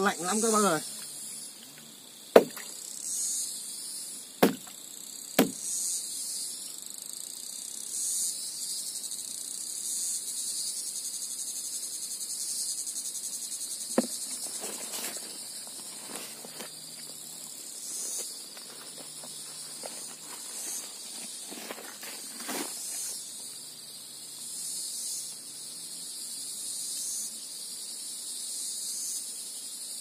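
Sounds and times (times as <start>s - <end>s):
insects trilling: 0.0s - 30.0s
rustling and scraping: 13.9s - 23.2s.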